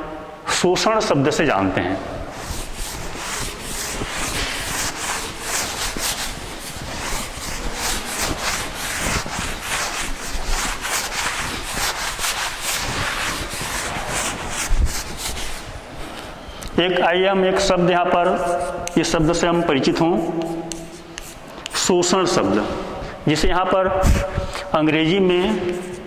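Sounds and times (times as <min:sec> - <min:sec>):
cloth rubbing chalk blackboard: 0:01.7 - 0:16.5, 0:17.6 - 0:23.2, 0:24.0 - 0:26.0.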